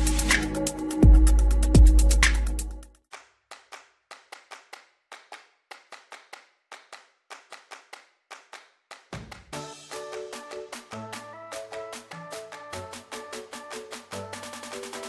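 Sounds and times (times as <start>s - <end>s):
music with held notes: 0.0s - 2.9s, 9.6s - 15.0s
sharp clap-like clicks: 3.1s - 15.0s.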